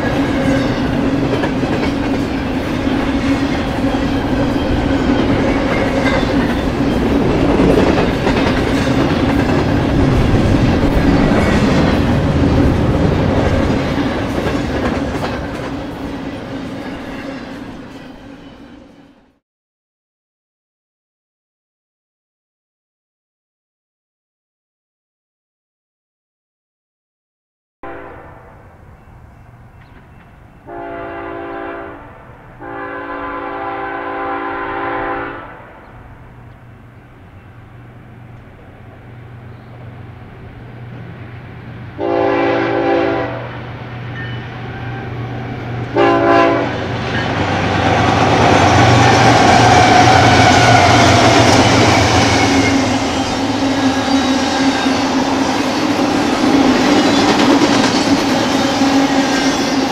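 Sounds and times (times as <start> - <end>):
locomotive engines passing: 0.0 - 19.0, 35.8 - 59.9
locomotive air horn blasts: 27.8 - 28.7, 30.7 - 35.9, 42.0 - 43.6, 45.9 - 46.8.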